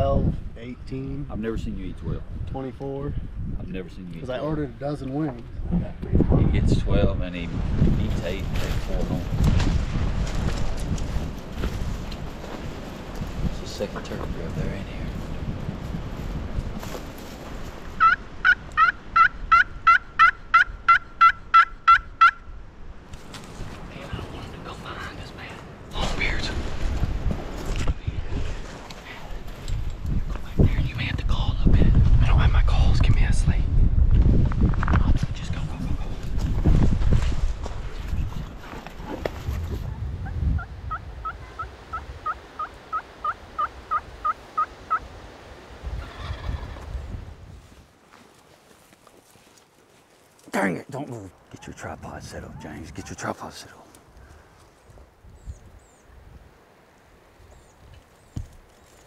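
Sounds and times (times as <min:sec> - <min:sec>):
wind rumble on microphone: 0:00.0 - 0:19.9, 0:22.5 - 0:42.5, 0:44.8 - 0:47.9, 0:51.5 - 0:53.2, 0:54.8 - 0:56.6
turkey yelping: 0:18.0 - 0:22.5, 0:40.6 - 0:45.1.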